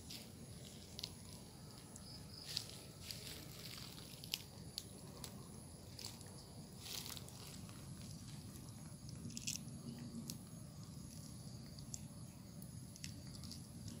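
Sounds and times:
fruit being peeled crackling: 3.8s - 14.0s.

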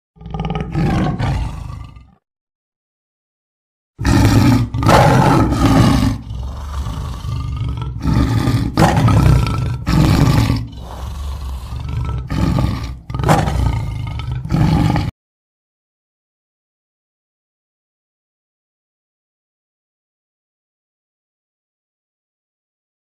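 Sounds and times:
low rumbling growls: 0.2s - 2.2s, 4.0s - 15.1s
tiger roaring: 0.2s - 2.2s, 4.0s - 15.1s.

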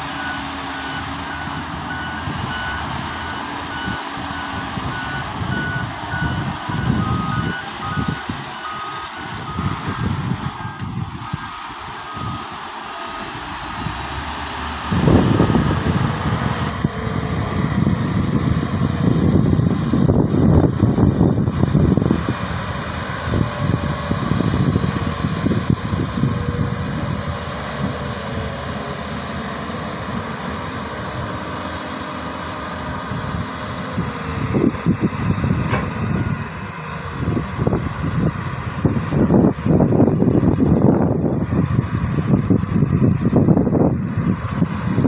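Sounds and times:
heavy diesel engines running: 0.0s - 45.0s.

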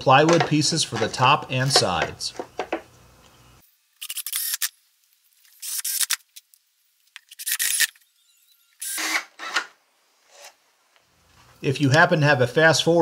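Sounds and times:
cordless drill driving screws: 8.8s - 9.7s.

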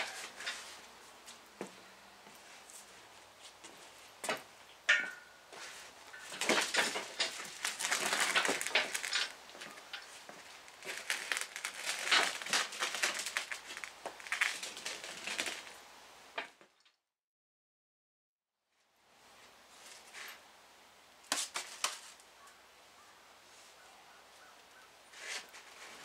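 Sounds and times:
casters rolling and rattling: 4.2s - 15.8s
metal frame clanking and scraping: 4.3s - 13.9s.

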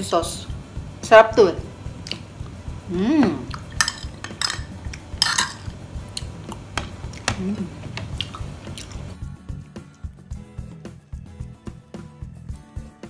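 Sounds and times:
background music: 0.0s - 13.0s
person humming mmm: 2.8s - 3.6s, 7.2s - 8.4s
spoon clinking on plate: 3.7s - 5.8s
chewing: 6.1s - 9.2s.

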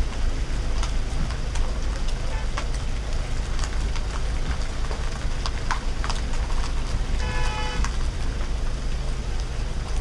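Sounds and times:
traffic engines rumbling: 0.0s - 10.0s
car horn toot: 7.2s - 7.9s.

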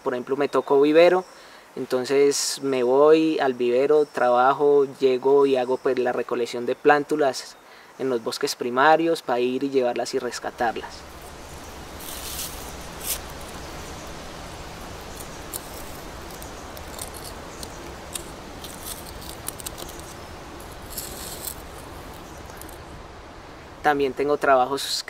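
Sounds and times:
steady background hiss: 0.0s - 25.0s
hand tool scraping in leaf litter: 11.1s - 22.8s.

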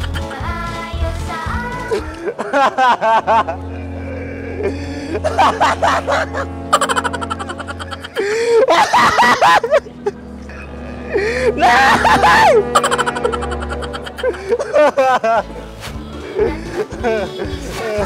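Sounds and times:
background music with bass: 0.0s - 18.0s
bursts of laughter: 1.9s - 15.6s.

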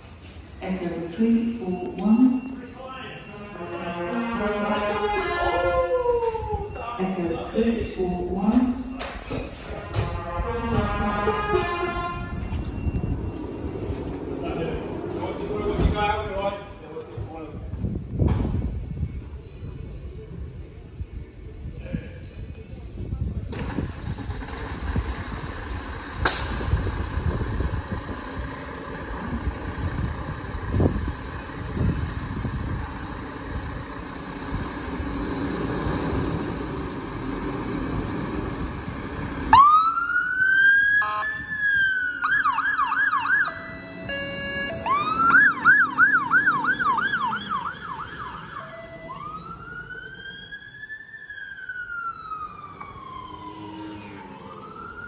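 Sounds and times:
diesel engine rumbling: 0.0s - 55.0s
siren wailing: 1.4s - 14.2s, 39.5s - 55.0s
short flat horn tones: 3.6s - 6.0s, 10.0s - 12.6s
siren yelping: 5.0s - 7.3s, 39.5s - 55.0s.

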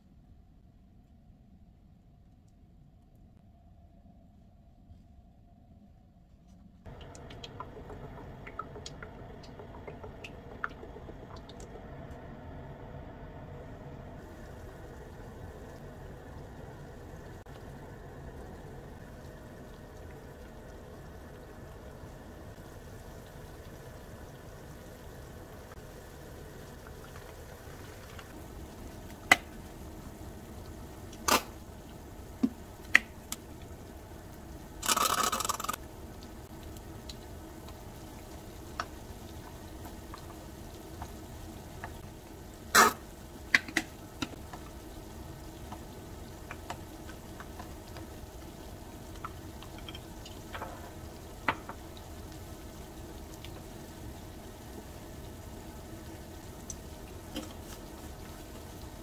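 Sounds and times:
faint steady hum: 0.0s - 59.0s
squeeze bottle sputtering: 34.8s - 35.8s.

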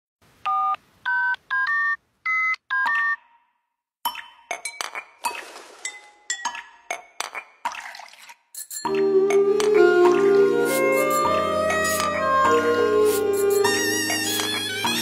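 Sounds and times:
telephone keypad dialing tones: 0.4s - 3.3s.

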